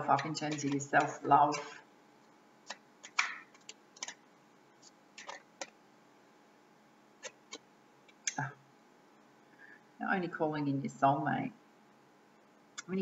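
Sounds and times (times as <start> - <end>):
cards clicking and rustling: 0.2 - 1.8, 2.7 - 4.2, 4.8 - 5.8, 7.2 - 7.6.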